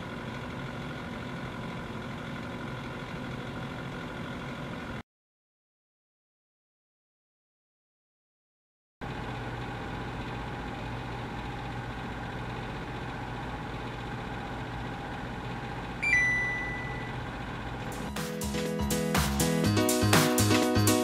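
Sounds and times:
oven humming: 0:09.0 - 0:20.9
high electronic beep: 0:16.0 - 0:17.2.

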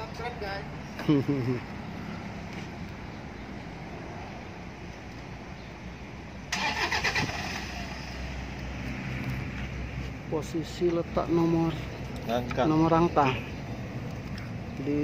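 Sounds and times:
engine starting and idling: 0:06.5 - 0:08.2.

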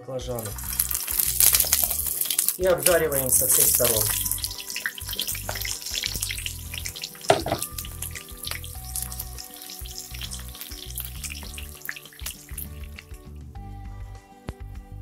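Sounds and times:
vegetables sizzling in oil: 0:00.4 - 0:13.2
wooden spatula stirring: 0:00.4 - 0:13.2
sharp knock: 0:07.3 - 0:07.7.

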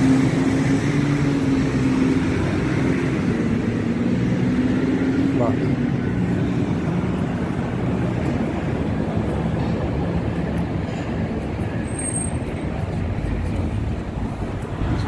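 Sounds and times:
urban traffic and street noise: 0:00.0 - 0:15.0.

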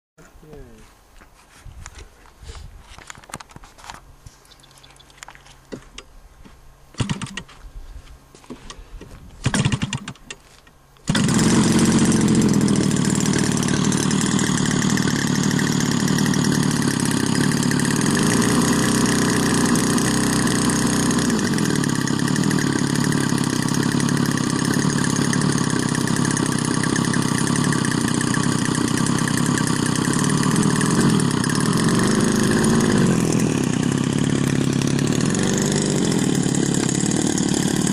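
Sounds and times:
two-stroke engine starting and running: 0:07.0 - 0:07.5, 0:09.4 - 0:10.4, 0:11.0 - 0:37.9.

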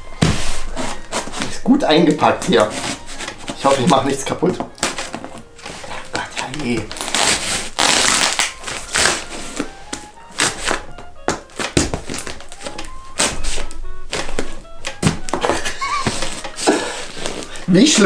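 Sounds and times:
blade hacking cardboard box: 0:00.2 - 0:01.6.

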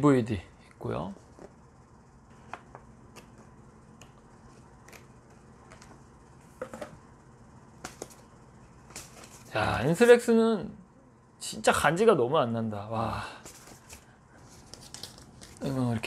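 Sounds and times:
low room hum: 0:00.0 - 0:16.0
paper and card handling: 0:07.8 - 0:09.6, 0:13.4 - 0:15.9.

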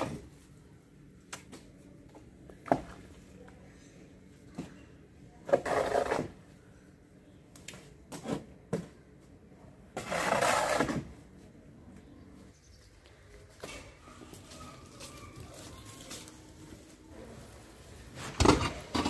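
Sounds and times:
shovel scraping cement floor: 0:05.4 - 0:06.4, 0:09.9 - 0:11.2.

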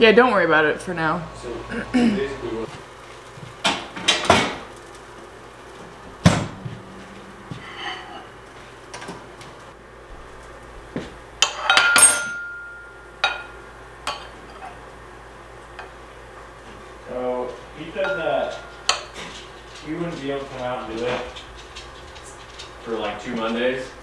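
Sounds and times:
utensils clinking on ceramic plates: 0:11.4 - 0:14.8, 0:17.9 - 0:23.9.

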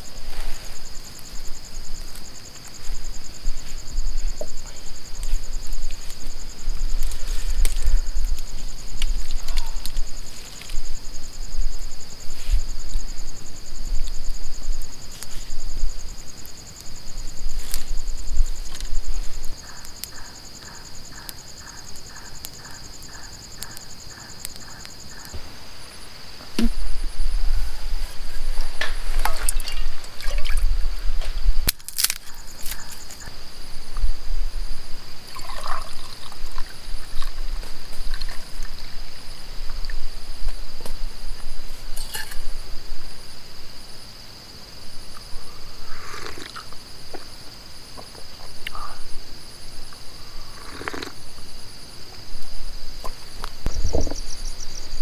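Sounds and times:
night insects chirping: 0:00.0 - 0:55.0
regular ticking: 0:19.4 - 0:25.4
liquid pouring: 0:35.3 - 0:36.7.

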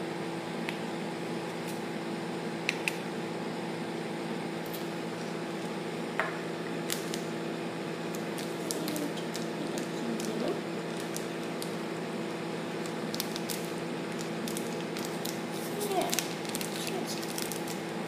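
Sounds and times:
steady background hum: 0:00.0 - 0:18.0.

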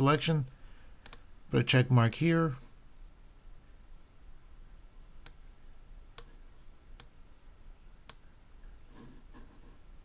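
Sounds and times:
computer mouse clicking: 0:01.0 - 0:01.3, 0:06.1 - 0:07.2, 0:08.0 - 0:08.2.

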